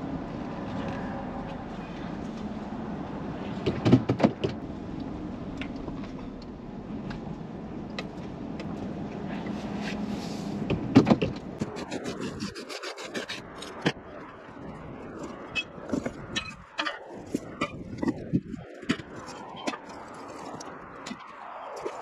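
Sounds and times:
clunks and rattles: 3.6s - 4.6s, 10.6s - 11.6s.

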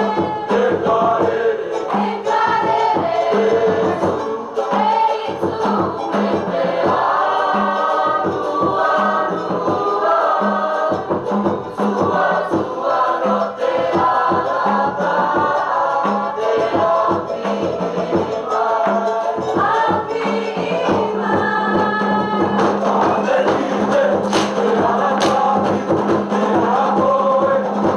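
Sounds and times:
drums and percussion beat: 0.0s - 27.9s
group singing in chorus: 0.0s - 27.9s.

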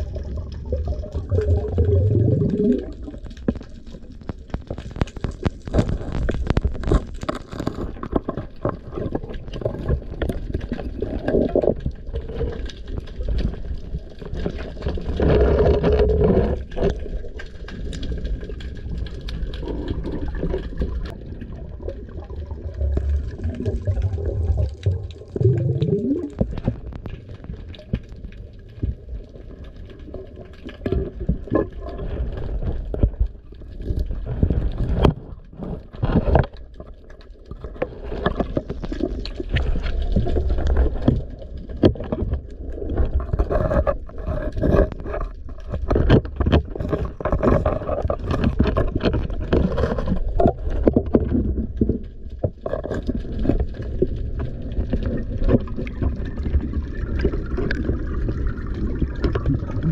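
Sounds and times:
water rushing and gurgling: 0.0s - 4.7s, 13.3s - 33.7s, 52.6s - 59.9s.

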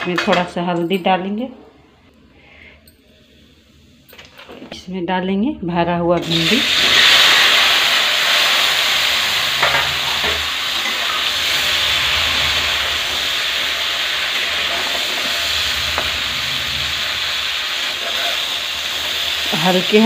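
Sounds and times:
okra sizzling in hot oil: 6.2s - 20.0s.

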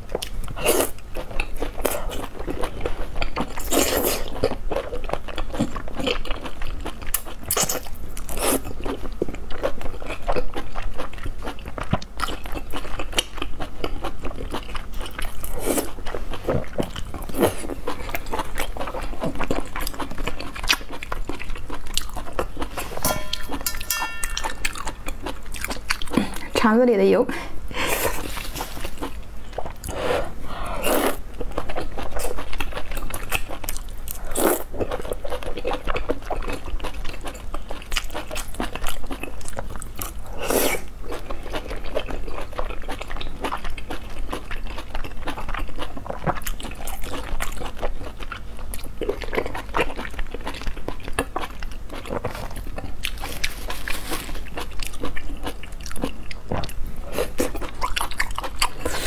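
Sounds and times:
person chewing with wet smacking: 0.0s - 26.7s, 28.0s - 30.0s, 30.8s - 59.0s.

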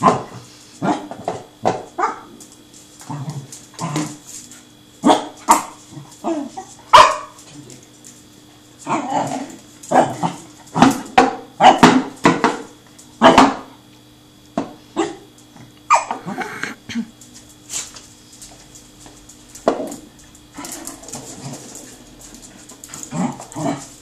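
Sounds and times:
puppy yapping: 5.1s - 7.4s, 15.9s - 16.7s
tin can knocking on tile floor: 19.6s - 20.0s.

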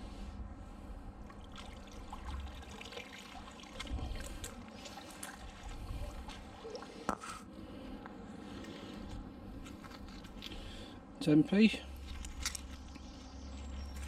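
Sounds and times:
water trickling and dripping: 1.2s - 7.2s.

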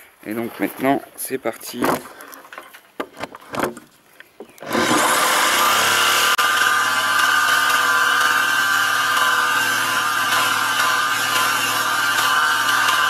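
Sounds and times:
jigsaw cutting wood: 4.6s - 13.0s.

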